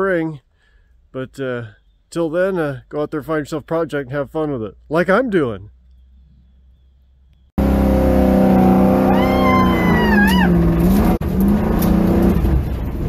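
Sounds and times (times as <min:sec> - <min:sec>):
car engine running hard: 0:07.6 - 0:13.0
high squeal: 0:08.8 - 0:10.6.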